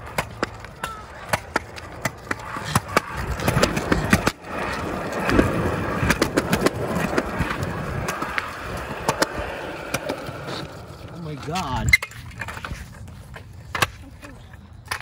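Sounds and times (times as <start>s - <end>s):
scooter wheels rolling on concrete: 0.0s - 15.0s
wheels clicking over joints: 0.0s - 15.0s.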